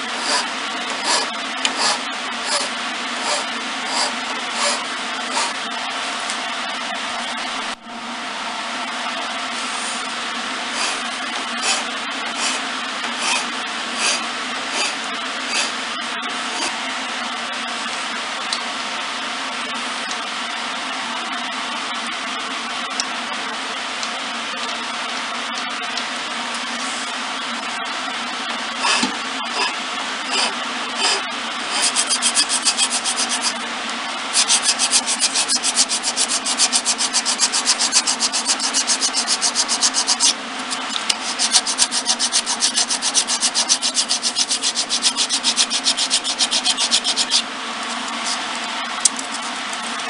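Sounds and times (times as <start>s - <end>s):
file rasping on wood: 0.0s - 5.6s, 10.7s - 15.8s, 16.5s - 16.8s, 28.8s - 33.6s, 34.3s - 47.4s
machine whirring: 0.0s - 6.3s, 9.5s - 16.9s, 28.6s - 50.0s.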